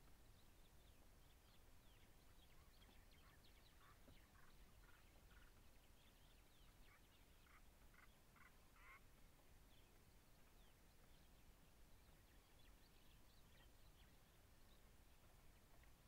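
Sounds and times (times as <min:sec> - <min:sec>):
harsh raspy bird calls: 0:06.9 - 0:09.0.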